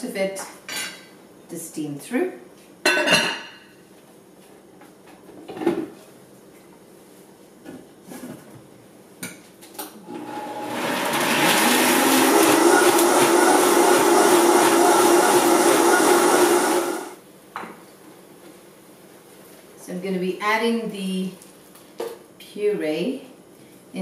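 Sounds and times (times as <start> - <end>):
blender motor running: 10.0 - 17.2.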